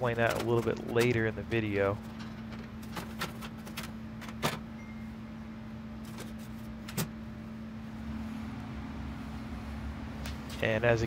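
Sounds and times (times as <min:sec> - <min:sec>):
low hum: 0:04.7 - 0:10.8.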